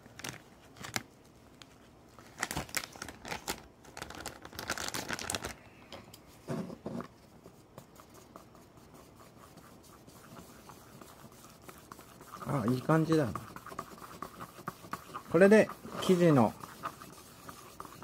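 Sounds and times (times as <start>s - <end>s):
flour packet crinkling: 0.0s - 5.6s.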